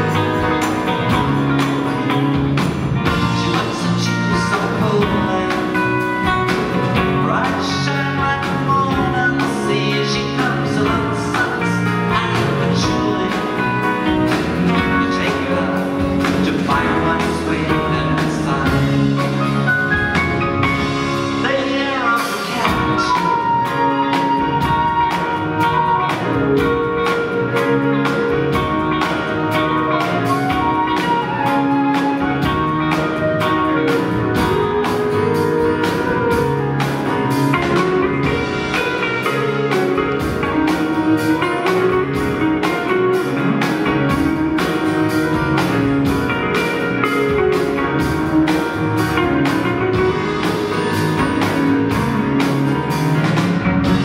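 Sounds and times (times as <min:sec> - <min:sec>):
acoustic guitar: 0:00.0 - 0:54.0
drum kit: 0:00.0 - 0:54.0
electric guitar lead: 0:00.0 - 0:54.0
flute melody: 0:15.0 - 0:54.0.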